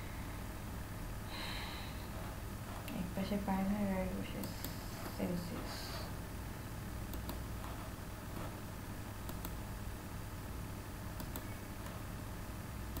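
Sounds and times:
low hum and room hiss: 0.0s - 13.0s
small sharp clicks: 11.2s - 12.0s.

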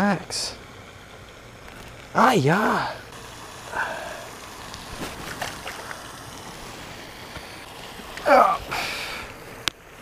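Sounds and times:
steady outdoor hiss: 0.0s - 10.0s
person exclaiming: 2.2s - 3.1s, 8.2s - 8.9s.

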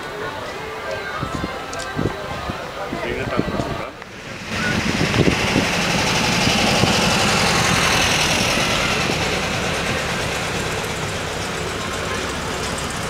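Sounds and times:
vehicle engine running: 4.0s - 13.0s.

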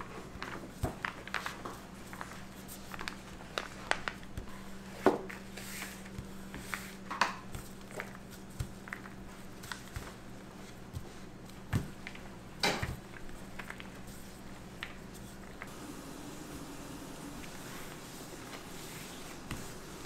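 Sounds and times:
steady low hum: 4.1s - 20.0s
utensils tapping and clicking: 11.0s - 13.9s.

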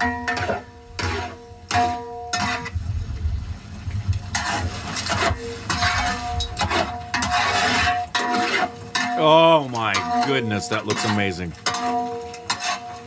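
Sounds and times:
ladle scraping pan: 0.0s - 2.8s, 4.3s - 13.0s
low rumble: 2.8s - 4.3s.

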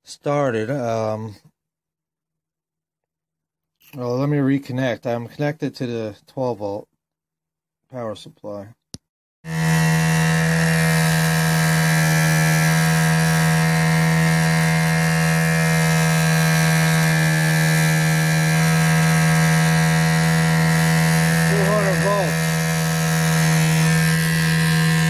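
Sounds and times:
small electric motor humming: 9.5s - 25.0s.

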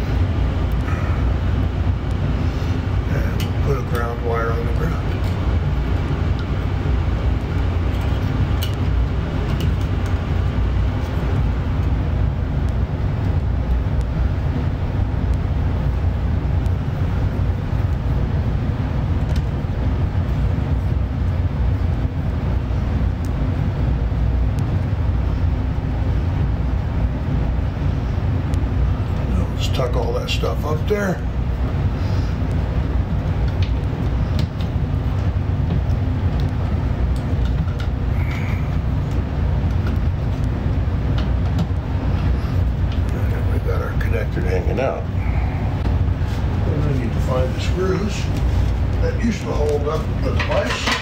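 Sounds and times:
low background rumble: 0.0s - 51.0s
wires and plastic clicking: 3.4s - 12.0s, 32.4s - 43.2s.

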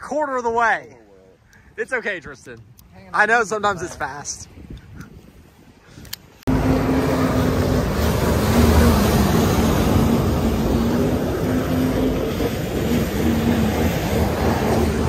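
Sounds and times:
jet ski engine drone: 6.5s - 15.0s
water rushing and spray: 6.5s - 15.0s.

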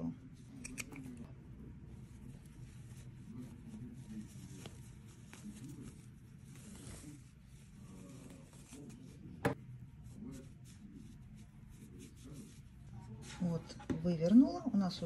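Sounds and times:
fabric rustling: 1.9s - 13.6s.

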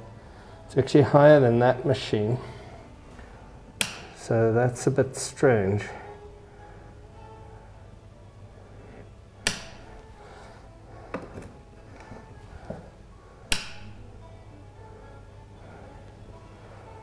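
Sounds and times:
low mains hum: 0.0s - 17.0s
rocker switch clicking: 3.8s - 4.2s, 9.4s - 9.9s, 13.5s - 14.0s.

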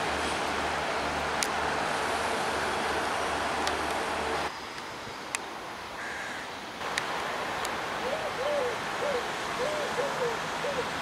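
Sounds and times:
diesel railcar humming: 0.0s - 4.5s
bird hooting: 8.0s - 11.0s.

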